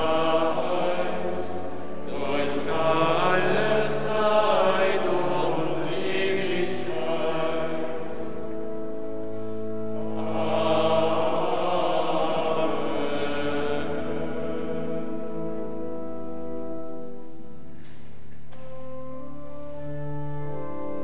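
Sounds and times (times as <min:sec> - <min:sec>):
choir chanting: 0:00.0 - 0:08.6, 0:09.8 - 0:16.0.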